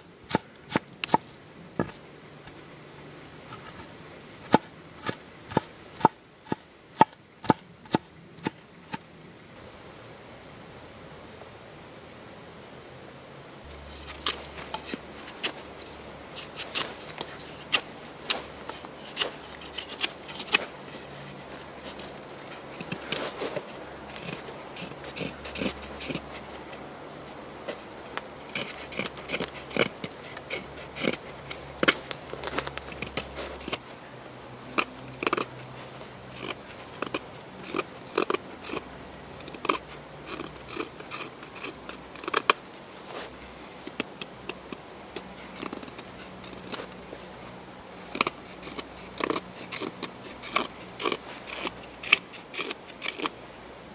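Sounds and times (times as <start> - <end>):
knife carving wooden stick: 0.2 - 2.0, 3.5 - 9.0, 13.7 - 27.4, 28.4 - 33.8, 34.7 - 42.6, 43.9 - 46.9, 48.1 - 53.4.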